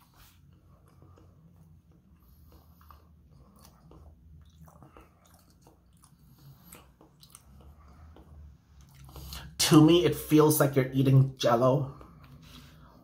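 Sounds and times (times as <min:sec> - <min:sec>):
low steady hum: 0:00.0 - 0:13.0
wet mouth chewing clicks: 0:00.8 - 0:09.5.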